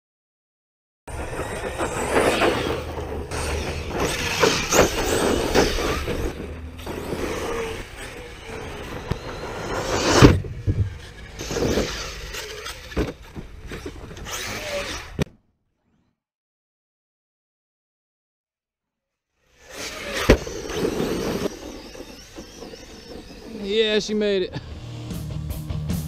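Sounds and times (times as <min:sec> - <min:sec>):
tyres scrabbling on dirt: 0:01.1 - 0:15.2
rc truck motor whine: 0:01.1 - 0:15.3, 0:19.4 - 0:25.6.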